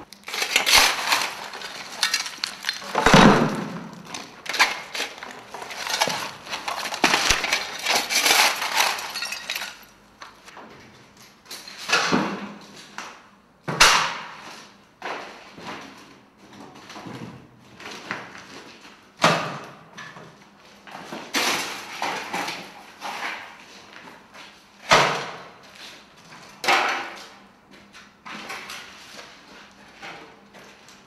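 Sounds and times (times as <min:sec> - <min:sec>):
debris knocking and clattering: 0:00.0 - 0:09.9
debris scraping and rustling: 0:00.0 - 0:10.5.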